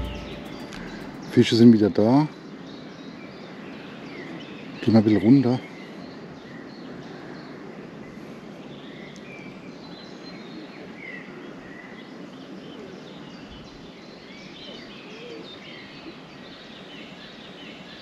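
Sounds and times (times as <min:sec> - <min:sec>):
open-air background hiss: 0:00.0 - 0:18.0.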